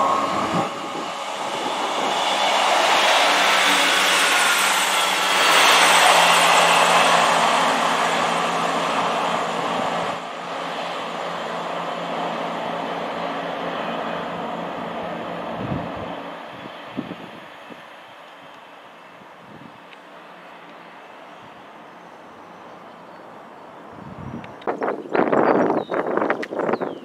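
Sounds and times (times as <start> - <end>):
wind on microphone: 0.0 - 4.4, 15.5 - 17.9, 23.9 - 27.0
train wheels on rails: 0.0 - 16.9
train engine hum: 0.0 - 27.0.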